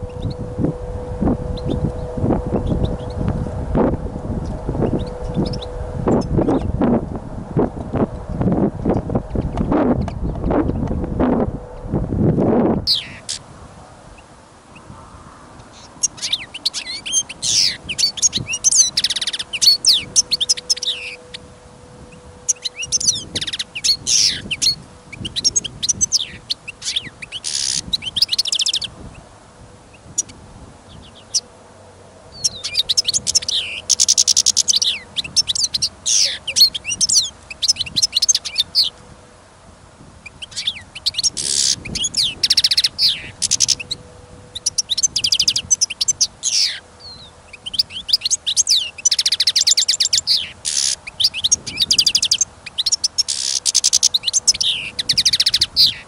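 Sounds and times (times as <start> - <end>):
finches twittering: 0.0 - 13.4, 15.8 - 29.0, 32.3 - 39.0, 40.2 - 56.0.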